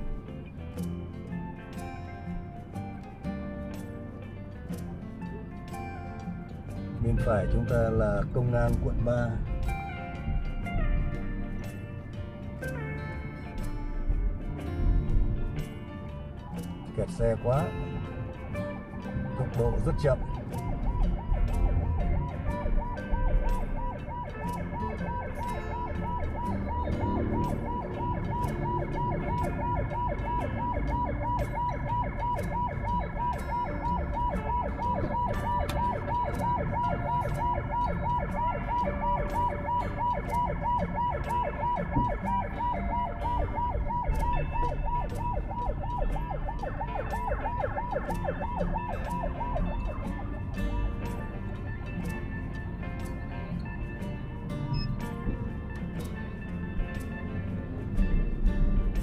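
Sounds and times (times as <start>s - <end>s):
street traffic rumble: 0.0s - 59.0s
siren yelping: 19.2s - 51.8s.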